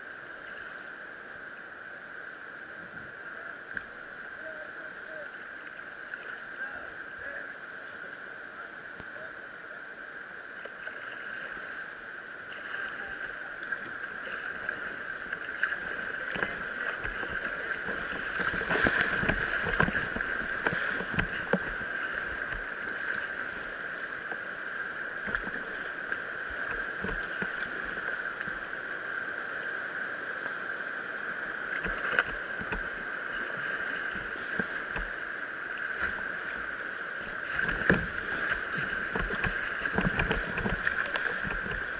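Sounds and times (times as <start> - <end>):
water splashing against boat: 10.6 - 29.6, 30.2 - 41.9
river rapids rushing: 11.3 - 41.9.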